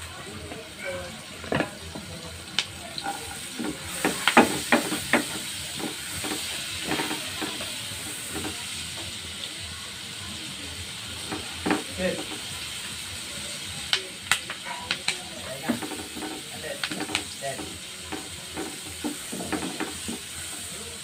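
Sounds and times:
onion sizzling in a pan: 0.0 - 21.0
spatula scraping a pan: 3.0 - 8.6, 15.6 - 20.7.

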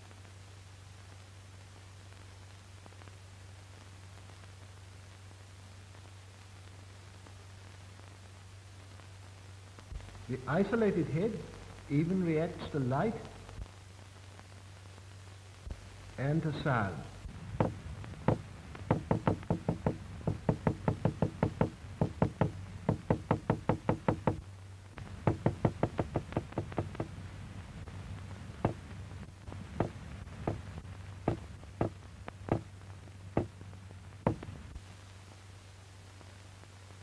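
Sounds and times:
hammer knocking on hard surface: 17.6 - 24.4, 25.2 - 27.1, 28.6 - 28.8, 29.8 - 30.6, 31.3 - 32.7, 34.3 - 34.5.

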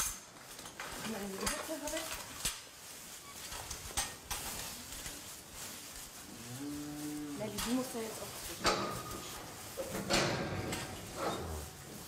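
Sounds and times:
cow mooing: 6.4 - 7.5.

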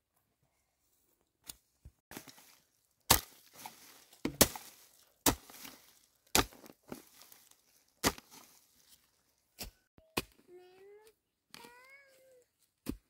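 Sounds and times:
chopping strikes: 3.1 - 3.6, 4.2 - 6.7.

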